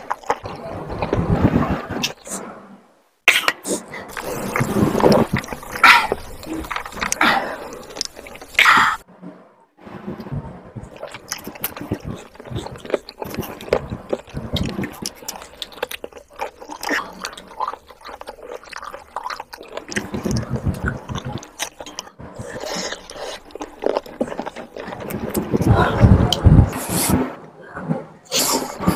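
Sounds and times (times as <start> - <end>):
chewing mouth sounds: 3.4 - 9.0, 11.0 - 25.7.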